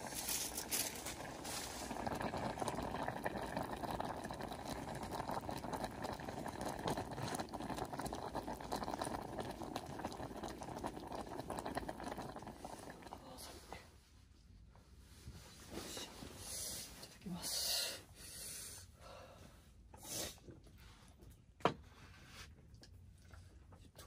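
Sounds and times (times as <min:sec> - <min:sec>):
broth boiling and bubbling: 0:00.0 - 0:13.8.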